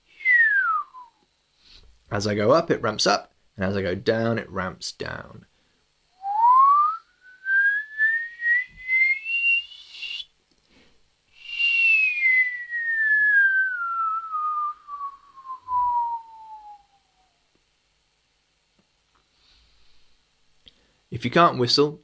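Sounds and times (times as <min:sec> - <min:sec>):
man whistling gliding pitch: 0:00.1 - 0:01.2, 0:06.2 - 0:10.3, 0:11.4 - 0:17.3.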